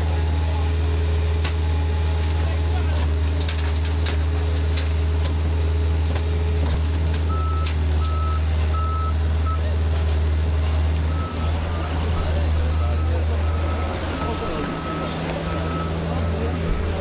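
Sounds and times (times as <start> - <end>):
heavy machine engine running: 0.0 - 17.0
reversing alarm beeping: 7.3 - 9.7, 11.1 - 17.0.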